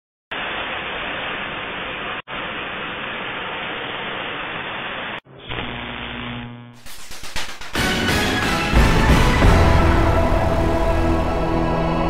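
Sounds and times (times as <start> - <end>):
static-like hiss: 0.3 - 7.7.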